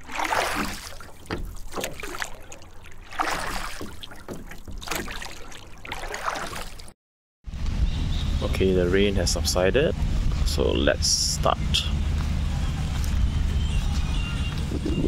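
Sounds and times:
water dripping and trickling: 0.0 - 6.9
paddle strokes splashing: 0.0 - 7.0.

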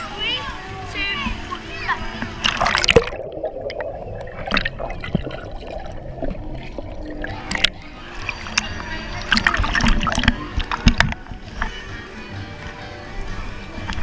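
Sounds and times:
water splashing: 1.2 - 11.8
underwater bubbling and sloshing: 1.2 - 11.9.

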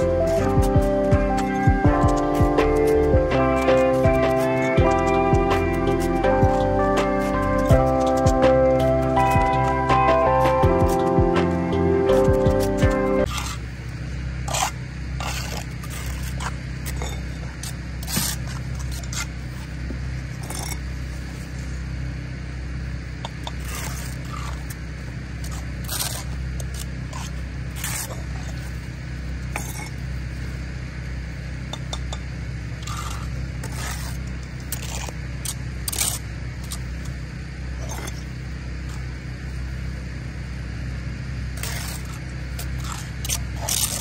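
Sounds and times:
low rumble: 0.0 - 44.0
trowel scraping and tapping mortar: 14.5 - 19.3, 23.2 - 24.8, 29.6 - 30.0, 32.8 - 36.8, 41.6 - 44.0.

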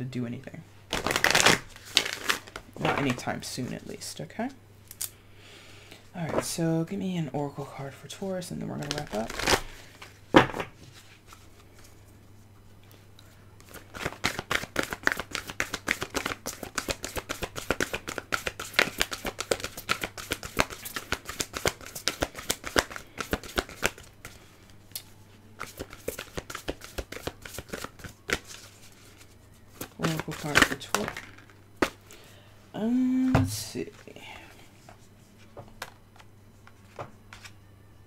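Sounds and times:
low steady hum: 0.0 - 38.0
cards being shuffled: 0.9 - 3.9, 8.8 - 10.2, 13.6 - 24.8, 25.6 - 32.1, 34.8 - 37.6.

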